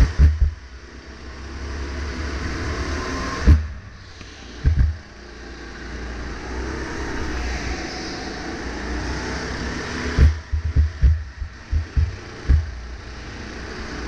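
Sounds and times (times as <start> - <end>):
sharp low thumps: 0.0 - 0.6, 4.6 - 5.0, 10.2 - 12.8
go-kart engine running: 0.0 - 0.8, 10.1 - 14.0.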